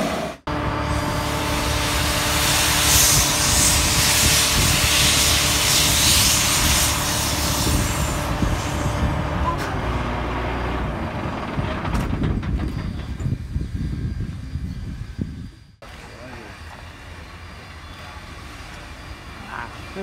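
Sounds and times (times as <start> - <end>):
steam locomotive hissing steam: 0.0 - 9.1, 13.6 - 20.0.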